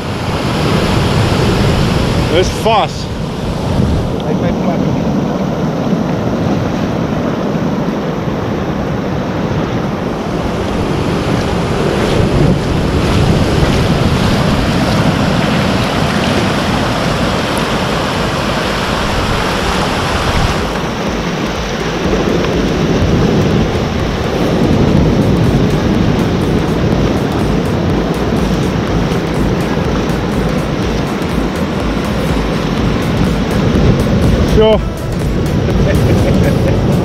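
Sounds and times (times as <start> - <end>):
surf breaking on sand: 0.0 - 37.0
wind buffeting microphone: 0.0 - 37.0.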